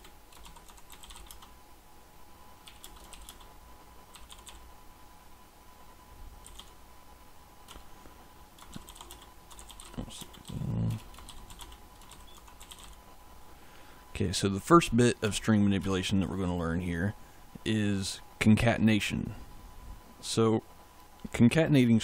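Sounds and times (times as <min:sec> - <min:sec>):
typing on keyboard: 0:00.0 - 0:01.5, 0:02.6 - 0:03.5, 0:04.1 - 0:04.6, 0:06.4 - 0:06.7, 0:08.6 - 0:13.0.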